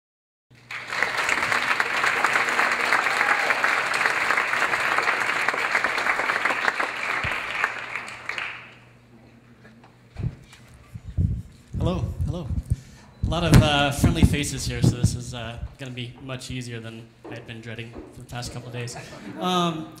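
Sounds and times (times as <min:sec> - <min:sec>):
audience applauding: 0:00.5 - 0:09.0.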